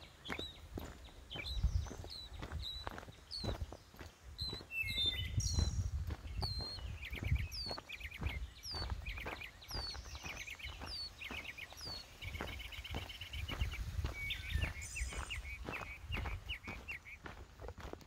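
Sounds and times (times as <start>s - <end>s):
footsteps on gravel: 0.0s - 18.0s
songbirds singing: 0.0s - 18.0s
bird trill: 4.4s - 17.6s.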